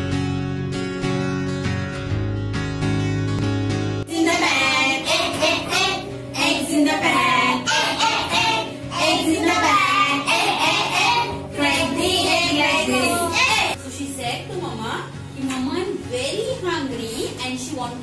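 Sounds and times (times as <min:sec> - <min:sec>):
plucked acoustic guitar: 0:00.0 - 0:04.1
children singing: 0:04.1 - 0:13.8.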